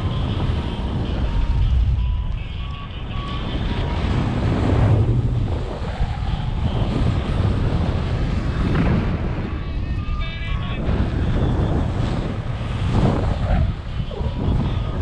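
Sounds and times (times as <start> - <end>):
short electronic beeps: 0.0 - 4.0
wind rushing over microphone: 0.0 - 15.0.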